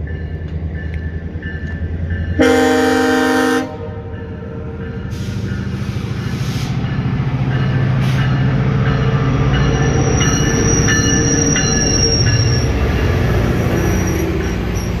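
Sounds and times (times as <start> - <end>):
diesel train rumble: 0.0 - 15.0
wheels and brakes squealing: 9.6 - 15.0.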